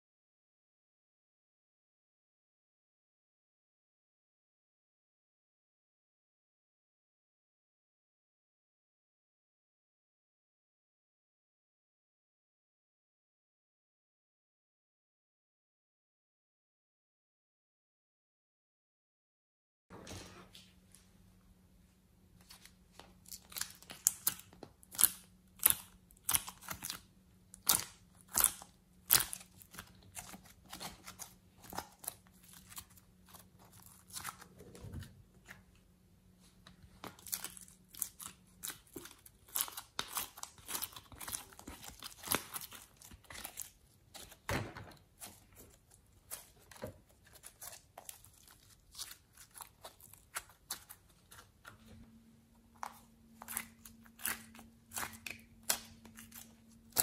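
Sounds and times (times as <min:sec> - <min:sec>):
clay tearing and squishing: 0:22.4 - 0:35.8, 0:36.5 - 0:57.0.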